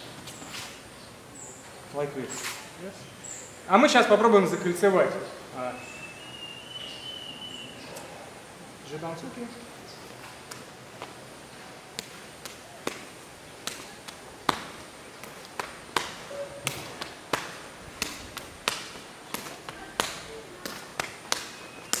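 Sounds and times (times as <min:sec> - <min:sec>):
slaps of hands and forearms: 0:12.0 - 0:22.0.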